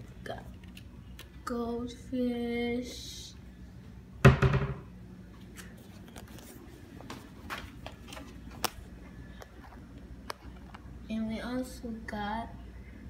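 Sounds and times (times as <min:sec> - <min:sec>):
loud knock: 0:04.2 - 0:04.9.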